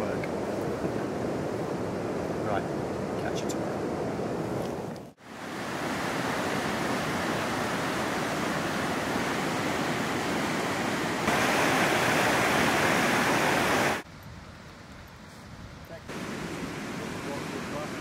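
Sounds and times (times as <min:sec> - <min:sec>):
river rushing over boulders: 0:05.2 - 0:14.1, 0:16.1 - 0:18.0.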